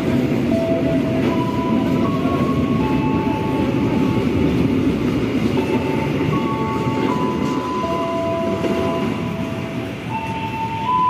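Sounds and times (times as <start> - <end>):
train wheels rumbling on rails: 0.0 - 11.0.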